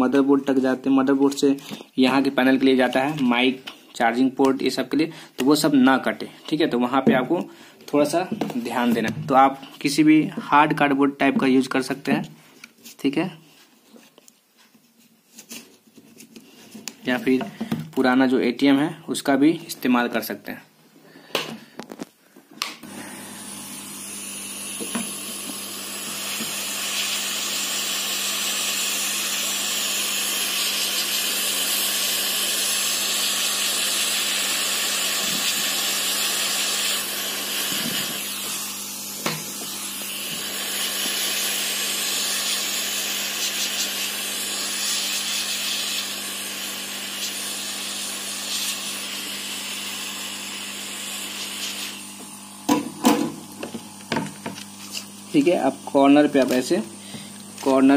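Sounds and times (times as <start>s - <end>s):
hot-air gun blowing: 22.8s - 57.8s.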